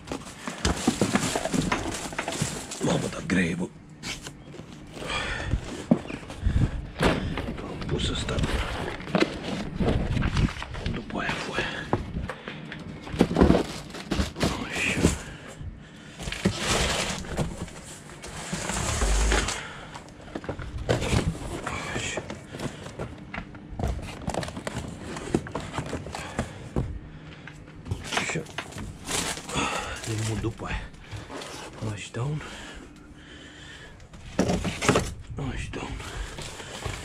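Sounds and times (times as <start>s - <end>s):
heavy boxes knocking and thudding: 0.0s - 3.1s, 13.0s - 15.4s, 34.2s - 35.2s
boxes scraping: 0.0s - 10.5s, 13.1s - 15.4s, 16.2s - 19.9s, 23.9s - 26.8s, 27.9s - 32.7s, 35.8s - 37.0s.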